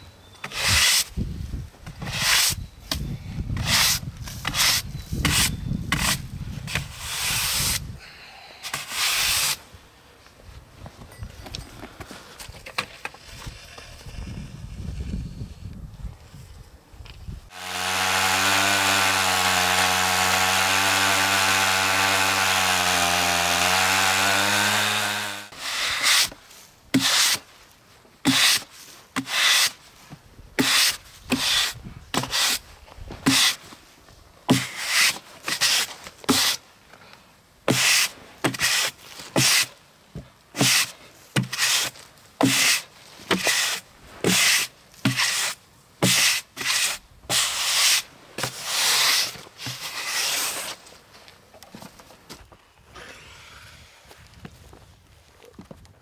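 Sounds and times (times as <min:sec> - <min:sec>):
push broom sweeping sawdust: 0:00.4 - 0:01.2, 0:02.0 - 0:02.6, 0:03.6 - 0:07.9, 0:08.6 - 0:09.6, 0:17.5 - 0:27.5, 0:28.2 - 0:30.0, 0:30.6 - 0:33.8, 0:34.5 - 0:36.6, 0:37.7 - 0:39.8, 0:40.5 - 0:50.9, 0:52.9 - 0:54.2
chainsaw running: 0:17.5 - 0:25.6.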